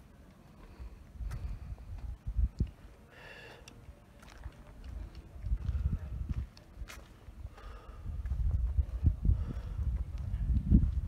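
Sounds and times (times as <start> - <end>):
wind rumble on microphone: 0.8 - 2.9, 4.7 - 11.0.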